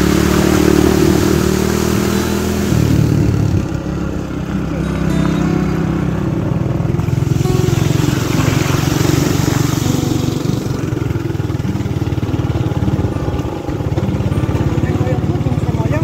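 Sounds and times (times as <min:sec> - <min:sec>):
small motorcycle engine running: 0:00.0 - 0:16.0
rushing hiss: 0:07.2 - 0:11.6.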